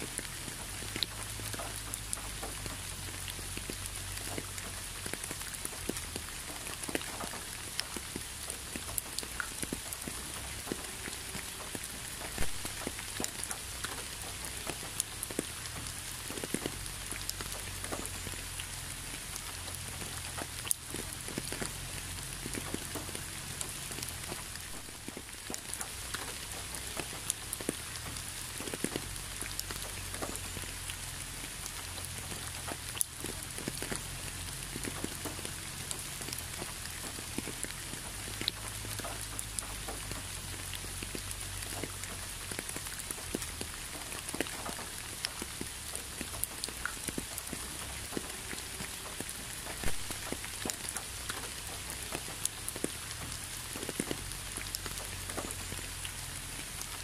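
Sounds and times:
raindrops pattering close by: 0.0s - 57.0s
steady rain falling: 0.0s - 57.0s.

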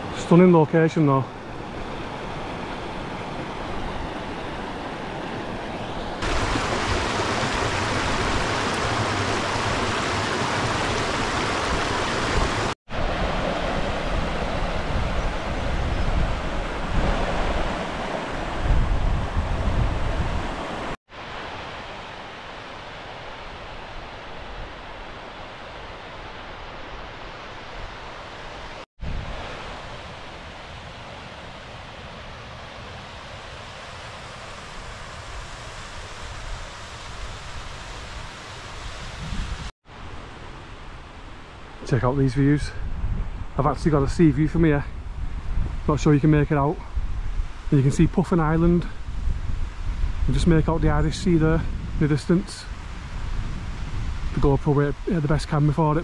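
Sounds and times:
rushing water of mountain stream: 0.0s - 42.7s, 43.3s - 56.0s
wind rumble on microphone: 1.6s - 20.9s, 29.0s - 31.5s, 34.5s - 39.7s, 42.5s - 56.0s.

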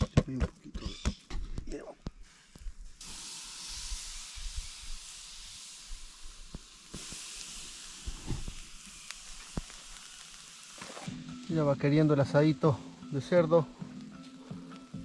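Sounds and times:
meat sizzling on a grill: 3.0s - 15.0s
small pops and crackles: 6.3s - 11.2s.

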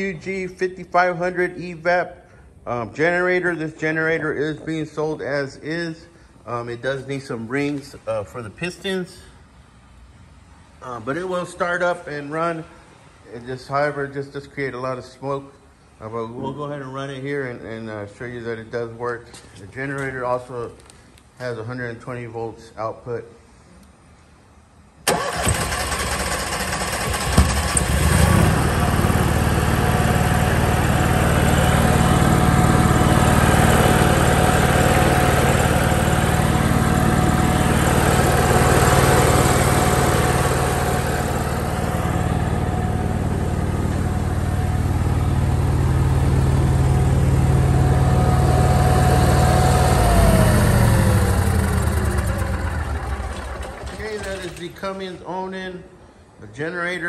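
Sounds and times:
generator whine: 25.0s - 55.2s
generator engine running: 25.1s - 55.0s.

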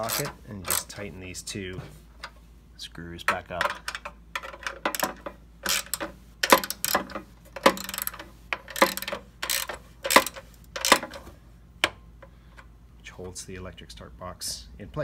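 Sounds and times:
ratchet clicking: 0.0s - 1.0s, 3.8s - 11.3s.

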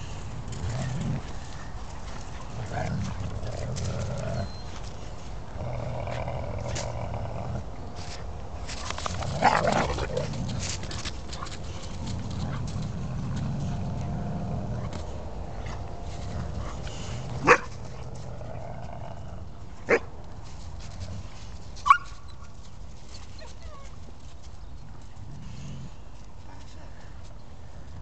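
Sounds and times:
dogs growling: 0.0s - 4.7s, 5.5s - 8.2s, 8.8s - 19.6s.

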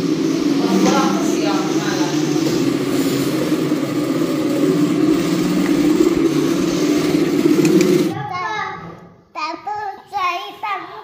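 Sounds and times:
plastic toy wheels rolling on tiles: 0.4s - 8.1s.

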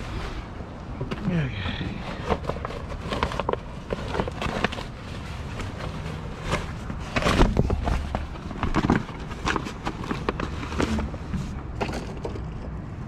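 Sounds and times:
pallets knocking and clanking: 6.4s - 12.8s.

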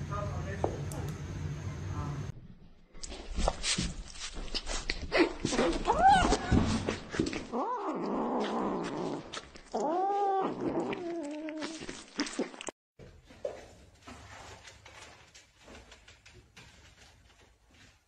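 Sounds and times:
kittens yowling growls: 5.6s - 6.7s, 7.5s - 11.9s.

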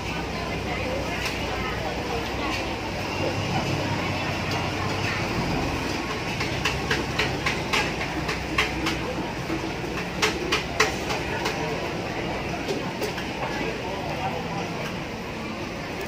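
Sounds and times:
street stall background noise: 0.0s - 16.0s.

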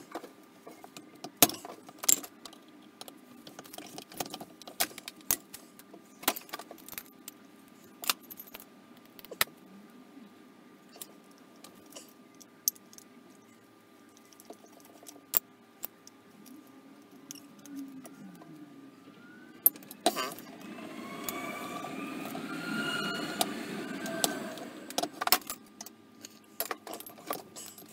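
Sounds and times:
faint steady hum: 0.0s - 27.9s
metal parts clinking and tapping: 0.1s - 9.5s, 10.9s - 13.4s, 14.1s - 18.2s, 19.6s - 20.5s, 25.0s - 27.9s.

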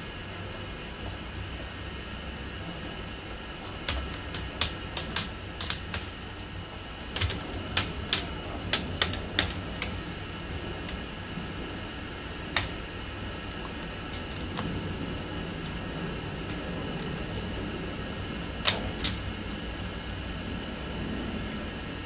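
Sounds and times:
steady low hum: 0.0s - 22.0s
plastic clicks and snaps: 3.9s - 6.2s, 7.2s - 10.0s, 12.5s - 12.8s, 18.6s - 19.3s.

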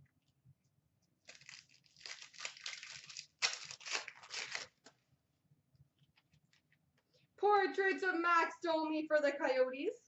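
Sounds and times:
foil wrapper tearing and crinkling: 1.2s - 5.0s.

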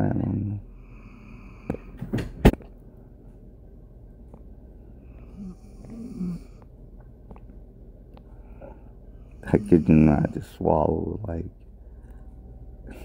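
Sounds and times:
person breathing faintly: 8.2s - 10.6s, 11.8s - 13.0s.

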